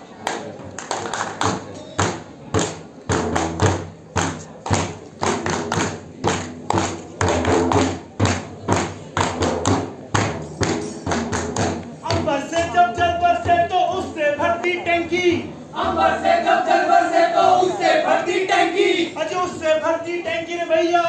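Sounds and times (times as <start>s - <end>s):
rhythmic clapping in unison: 0.2s - 13.6s
group singing: 15.7s - 19.1s
group of voices chanting: 15.7s - 19.2s.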